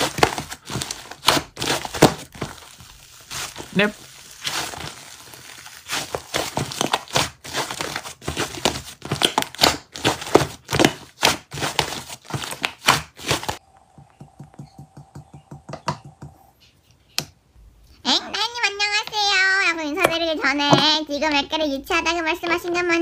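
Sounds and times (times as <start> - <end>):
slime crackling and popping: 0.0 - 13.6.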